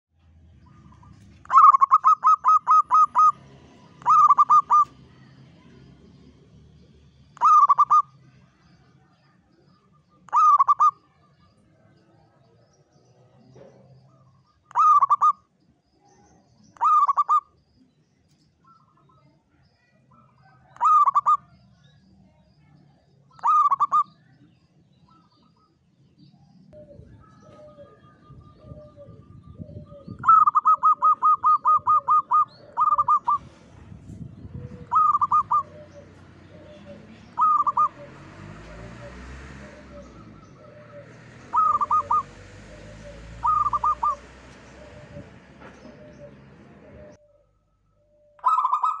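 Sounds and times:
faint calls: 0:00.6 - 0:06.1, 0:07.3 - 0:08.9, 0:09.5 - 0:12.5, 0:13.3 - 0:15.6, 0:18.6 - 0:25.8, 0:34.6 - 0:49.0
dove cooing: 0:00.7 - 0:05.0, 0:07.4 - 0:08.2, 0:10.3 - 0:11.2, 0:14.1 - 0:15.4, 0:16.8 - 0:17.5, 0:20.1 - 0:21.5, 0:23.3 - 0:24.1, 0:26.8 - 0:33.8, 0:34.4 - 0:47.4, 0:48.1 - 0:49.0.

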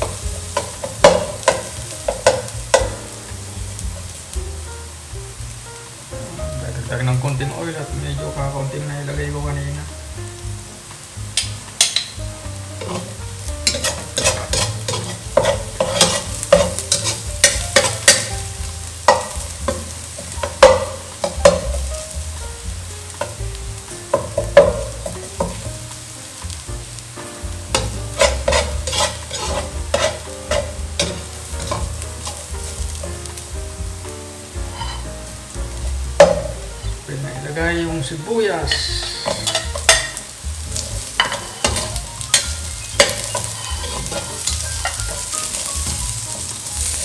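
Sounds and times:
garlic frying in oil: 0:00.0 - 0:47.0
metal spatula scraping pan: 0:12.8 - 0:18.5, 0:27.7 - 0:32.5, 0:34.7 - 0:35.2, 0:38.7 - 0:40.2, 0:40.8 - 0:47.0.

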